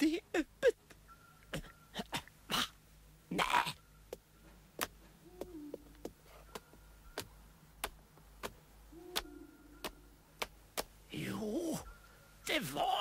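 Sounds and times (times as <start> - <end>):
soft evenly spaced ticks: 3.8 - 11.0.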